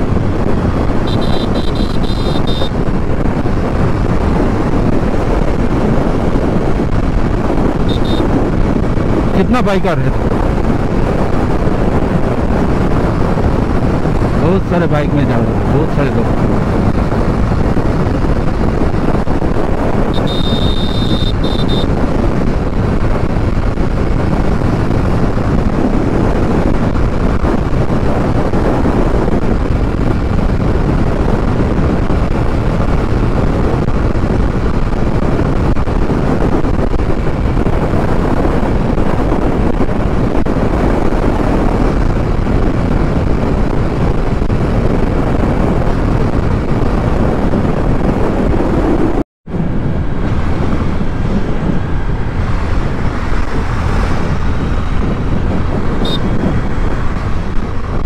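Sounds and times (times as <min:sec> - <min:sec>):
motorcycle engine cruising: 0:00.0 - 0:09.5, 0:15.4 - 0:58.0
road noise: 0:00.0 - 0:58.0
wind rushing on microphone: 0:00.0 - 0:58.0
brief high-pitched tone: 0:20.2 - 0:21.9.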